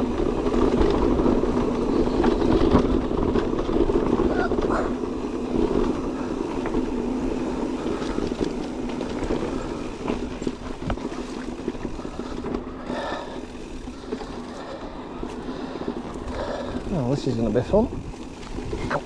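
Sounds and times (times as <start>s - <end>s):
bike tyres rumbling on rocky trail: 0.0s - 19.0s.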